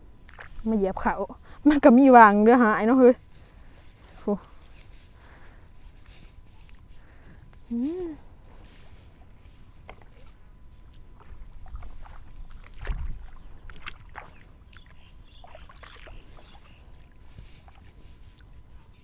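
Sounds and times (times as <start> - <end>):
splashing steps in muddy water: 10.9 - 17.8.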